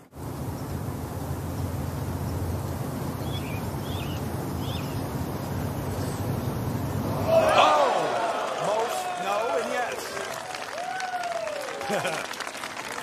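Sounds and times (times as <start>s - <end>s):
low outdoor rumble: 0.0s - 13.0s
bird chirps: 2.2s - 6.8s.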